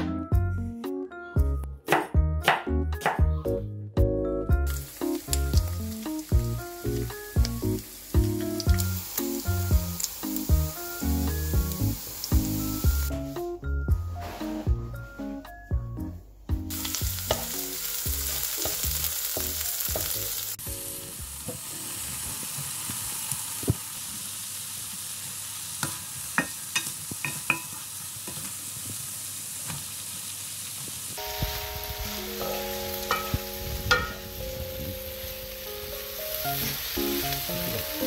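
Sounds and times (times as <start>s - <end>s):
food sizzling in hot oil: 4.6s - 13.5s, 16.7s - 38.0s
wooden spatula scraping wok: 14.1s - 15.0s.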